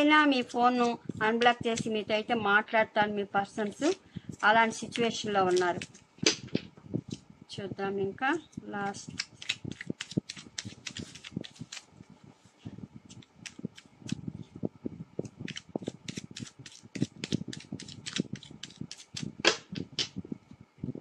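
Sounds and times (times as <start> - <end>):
cards being shuffled: 5.0 - 7.2, 9.0 - 11.9, 13.1 - 14.2, 15.4 - 20.1.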